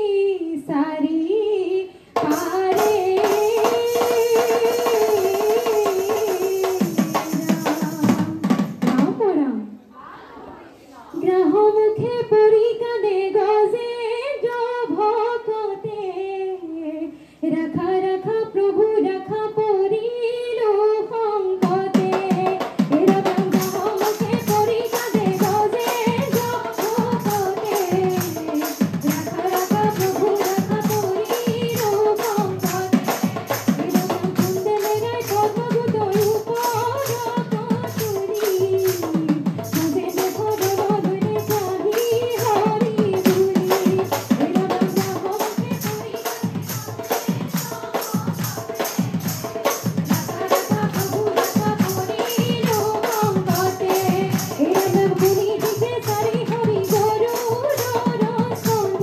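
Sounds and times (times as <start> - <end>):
women singing together: 0.0 - 9.0, 9.9 - 59.0
rhythmic hand-clapping: 23.1 - 59.0.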